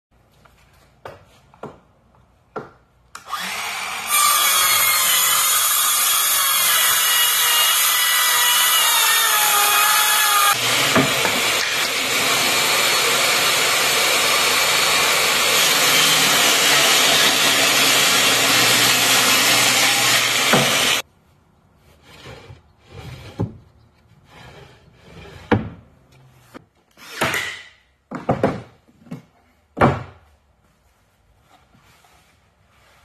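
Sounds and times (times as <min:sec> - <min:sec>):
table saw ripping plywood: 0:03.4 - 0:21.0
knocks and scrapes of wood parts: 0:21.8 - 0:26.6.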